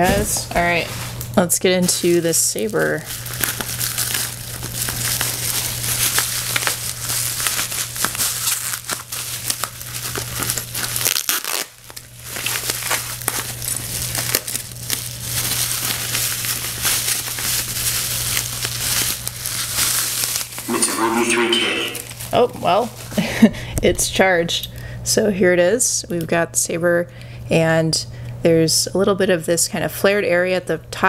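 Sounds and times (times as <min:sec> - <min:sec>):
bubble wrap crinkling: 0:00.4 - 0:20.8, 0:22.0 - 0:23.5.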